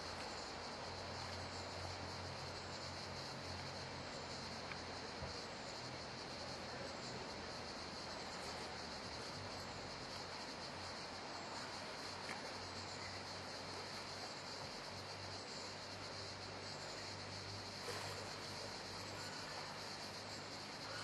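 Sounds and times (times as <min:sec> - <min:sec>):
even hiss: 0:00.0 - 0:21.0
faint ticks: 0:04.4 - 0:05.4, 0:12.1 - 0:13.1.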